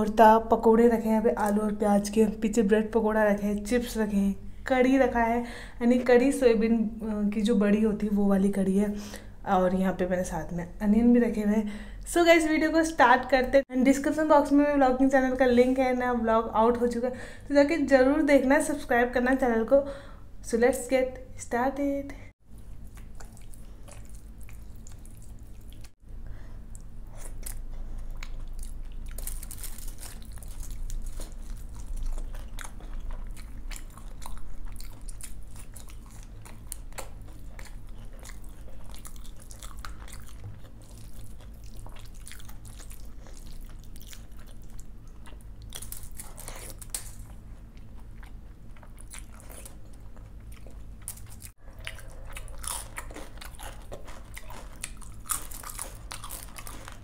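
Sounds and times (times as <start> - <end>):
woman chewing food: 22.4 - 57.0
food crunching: 22.5 - 26.0, 26.6 - 57.0.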